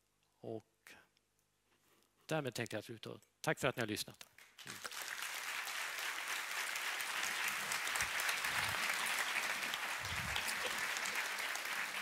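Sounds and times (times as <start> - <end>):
large audience applauding: 4.4 - 12.0.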